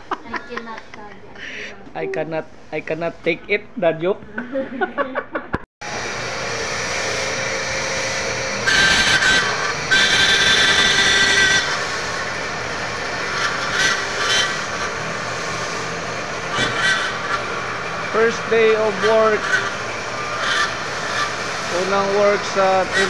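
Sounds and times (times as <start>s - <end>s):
high-pitched whine: 5.8s - 23.0s
machinery running: 5.8s - 23.0s.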